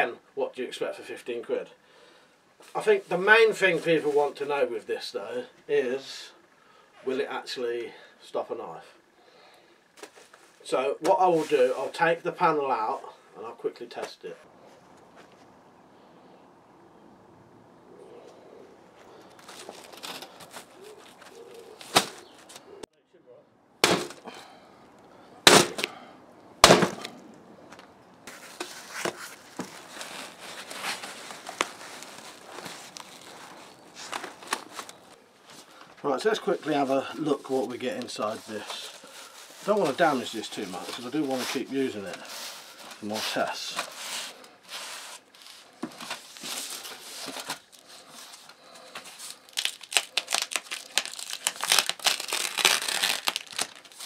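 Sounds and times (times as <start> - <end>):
fabric cover crinkling: 19.0 - 22.8, 28.3 - 54.0
sharp crackles: 26.6 - 35.7, 46.2 - 54.0.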